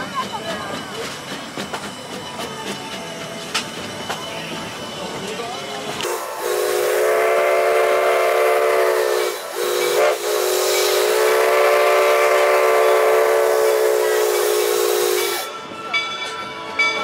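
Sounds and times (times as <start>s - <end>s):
steam hissing: 0.0s - 15.8s
steam locomotive whistle: 6.0s - 15.8s.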